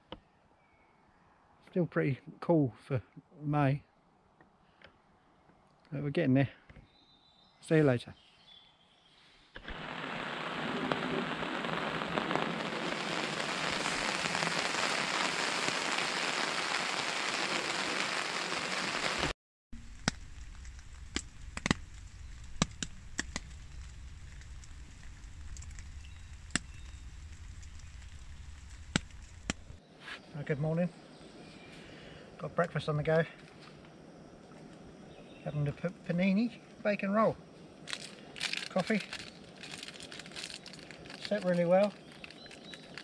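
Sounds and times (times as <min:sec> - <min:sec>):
rain on a tarp: 0:09.6 - 0:29.8, 0:37.9 - 0:43.0
raindrops ticking on a tarp: 0:09.6 - 0:29.8, 0:37.9 - 0:43.0.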